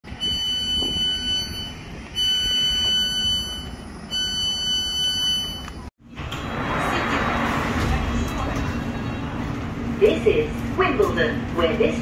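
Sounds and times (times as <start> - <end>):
electronic alarm beeping: 0.2 - 5.8.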